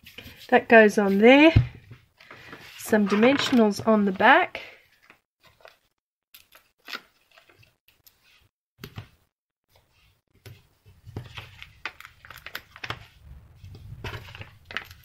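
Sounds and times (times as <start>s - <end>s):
paper clicking and rustling: 10.4s - 13.2s, 14.0s - 15.0s
low rumble: 13.0s - 15.0s.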